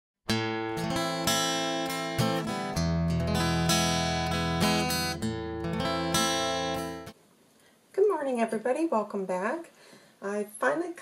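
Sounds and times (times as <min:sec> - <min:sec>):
acoustic guitar chords: 0:00.3 - 0:07.2.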